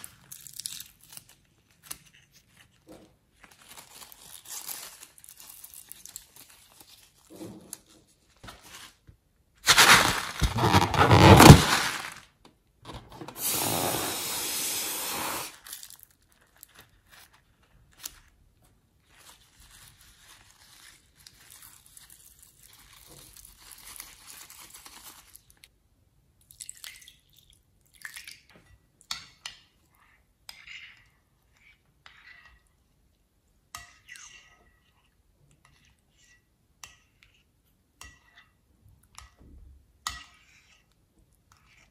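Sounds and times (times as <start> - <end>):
rubber crinkling: 9.6 - 12.2
rubber balloon stretching: 9.7 - 12.2
stick stirring in glass bowl: 40.1 - 41.9.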